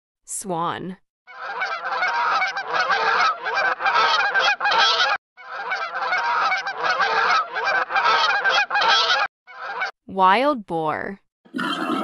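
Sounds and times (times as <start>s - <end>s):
swans honking: 1.3s - 10.0s.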